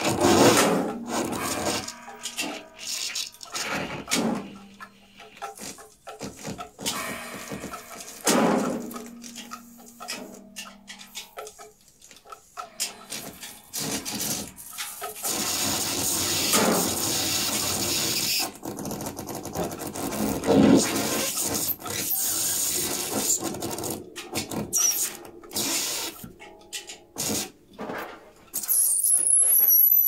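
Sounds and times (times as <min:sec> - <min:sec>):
scattered clicks and scrapes: 0:00.0 - 0:30.0
sharp struck sound: 0:06.9 - 0:11.0.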